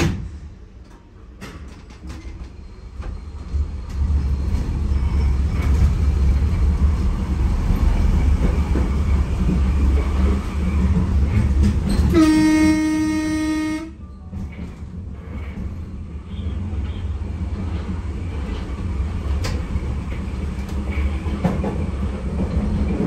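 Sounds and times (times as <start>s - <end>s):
train running on rails: 0.0s - 23.0s
train wheels clicking: 0.8s - 23.0s
train horn: 12.1s - 14.1s.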